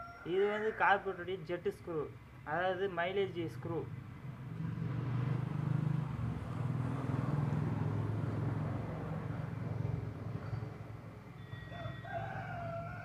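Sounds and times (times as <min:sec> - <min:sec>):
vehicle engine humming: 0:03.4 - 0:11.4.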